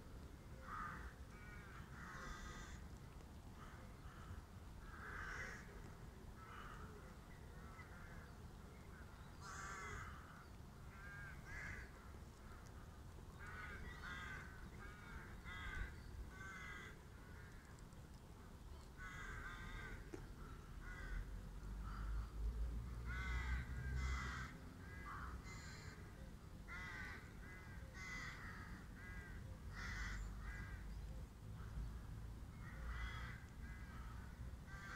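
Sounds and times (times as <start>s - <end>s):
birds calling: 4.8s - 17.9s.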